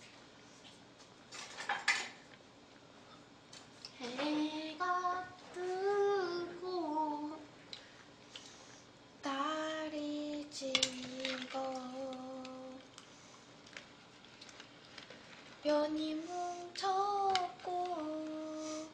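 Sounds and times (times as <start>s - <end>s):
woman singing drawn-out notes: 15.7s - 18.9s.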